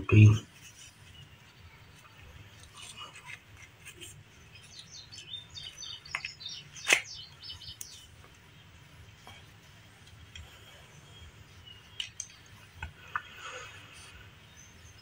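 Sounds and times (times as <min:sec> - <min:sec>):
faint high chirping: 0:00.0 - 0:09.6.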